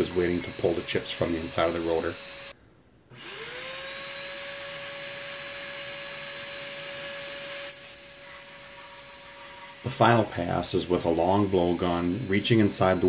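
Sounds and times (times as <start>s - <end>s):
shop vac motor whining: 0.0s - 13.0s.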